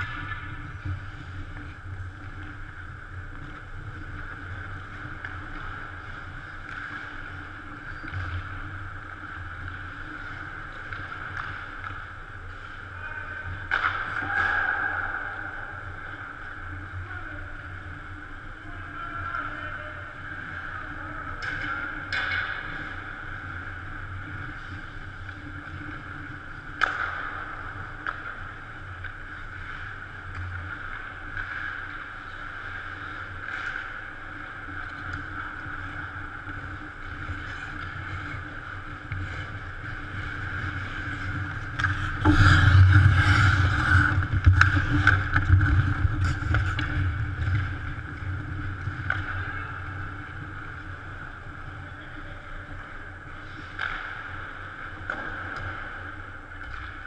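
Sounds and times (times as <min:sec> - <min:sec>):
hockey sticks and puck clicking: 0:00.0 - 0:17.0, 0:20.6 - 0:57.0
arena hum: 0:00.0 - 0:57.0
skates scraping ice: 0:00.0 - 0:57.0.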